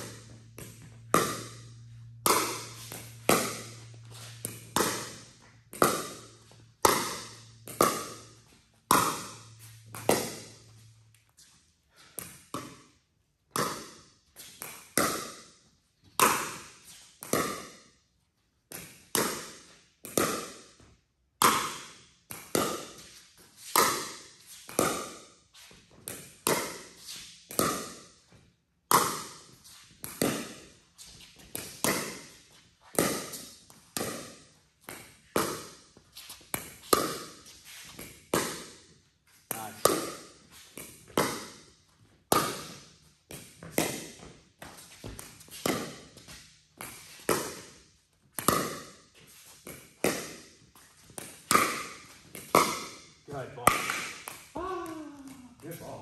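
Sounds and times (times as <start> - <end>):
ball bouncing on court: 0.0 - 10.8, 12.2 - 12.8, 13.5 - 14.0, 14.6 - 15.5, 16.2 - 17.8, 18.7 - 20.6, 21.4 - 23.1, 23.8 - 25.2, 26.0 - 26.8, 27.5 - 28.0, 28.9 - 30.7, 31.4 - 35.8, 36.5 - 38.8, 39.5 - 41.7, 42.3 - 49.0, 49.6 - 56.0.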